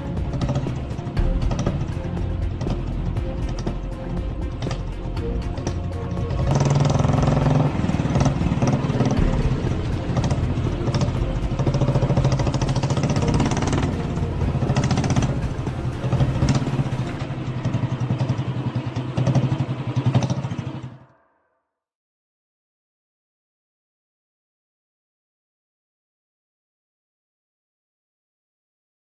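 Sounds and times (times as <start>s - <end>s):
motorcycle engine running: 0.0s - 21.1s
road noise: 0.0s - 21.1s.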